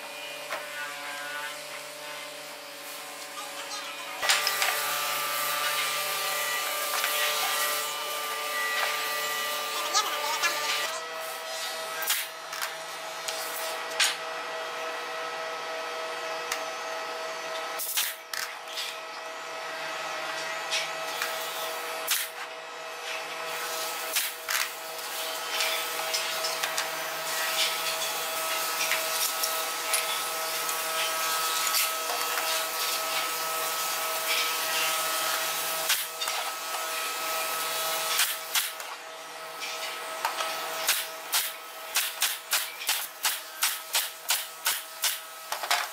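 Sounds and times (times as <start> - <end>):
nail gun firing: 22.1 - 22.4, 38.2 - 38.9, 40.8 - 45.2.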